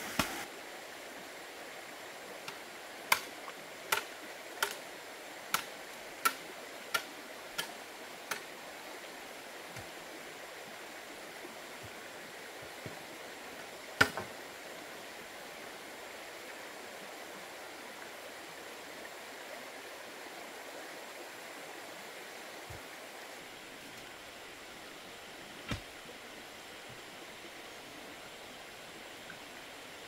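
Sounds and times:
shallow stream rushing: 0:00.0 - 0:30.0
sharp knocks on bamboo: 0:14.0 - 0:14.3, 0:25.7 - 0:25.9.

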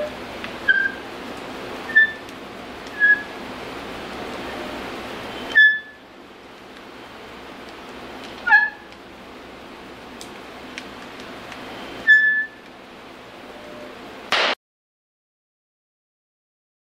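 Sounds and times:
bench vise squeaking: 0:00.0 - 0:01.1, 0:01.8 - 0:02.3, 0:02.9 - 0:03.4, 0:05.3 - 0:06.0, 0:08.4 - 0:08.9, 0:11.7 - 0:12.6
steady background hiss: 0:00.0 - 0:14.6.

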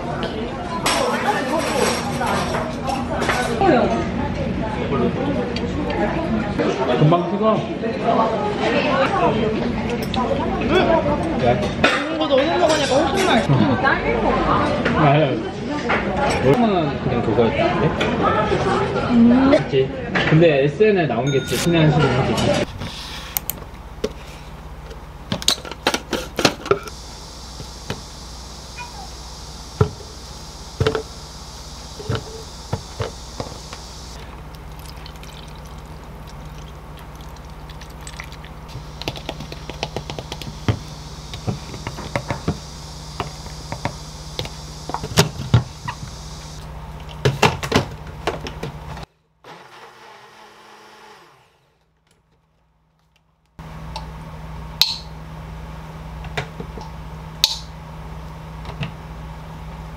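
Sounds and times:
steady low hum: 0:22.6 - 0:49.1.

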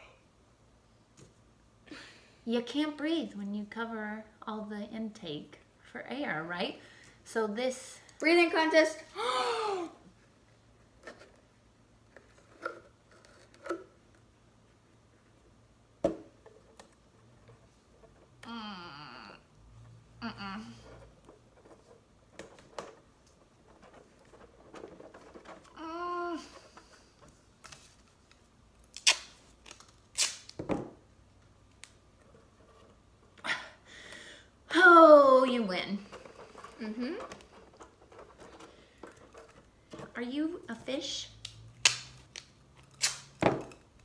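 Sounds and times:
duct tape ripping: 0:28.8 - 0:30.6, 0:41.4 - 0:43.4.

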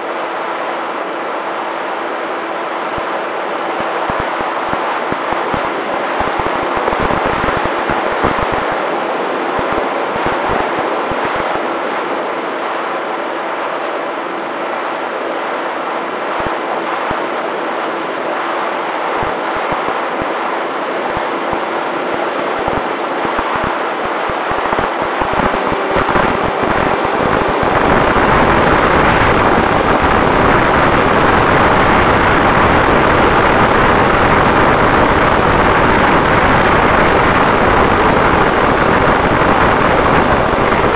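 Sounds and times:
wind rushing: 0:21.2 - 0:35.4.

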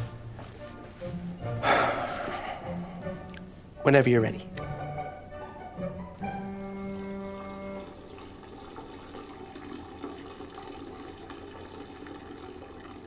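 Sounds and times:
held musical note: 0:01.0 - 0:08.5
water rushing through plumbing: 0:06.2 - 0:13.0.

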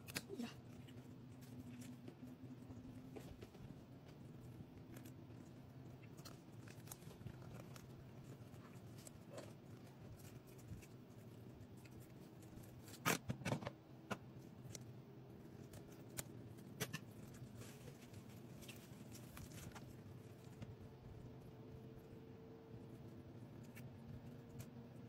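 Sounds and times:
scissors snipping: 0:00.0 - 0:00.6
faint low hum: 0:00.0 - 0:25.0.

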